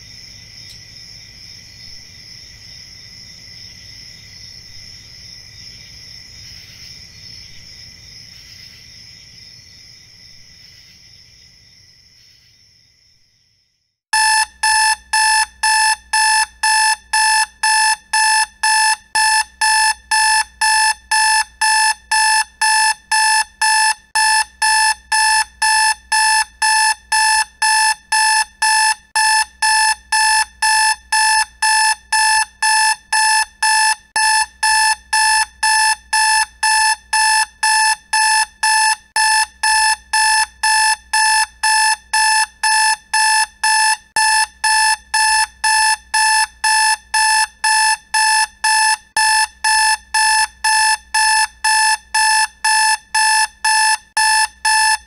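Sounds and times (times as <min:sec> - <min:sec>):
alarm clock beeping: 0:14.2 - 0:55.0.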